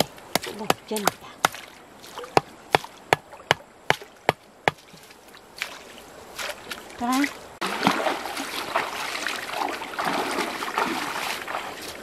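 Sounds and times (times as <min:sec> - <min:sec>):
machete chopping: 0:00.0 - 0:01.7, 0:02.3 - 0:04.9.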